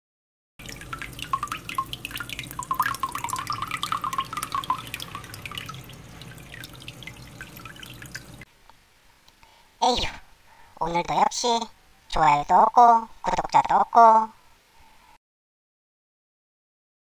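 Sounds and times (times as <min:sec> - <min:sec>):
low motor hum: 0:00.6 - 0:08.4
water splashing and dripping: 0:00.6 - 0:08.5.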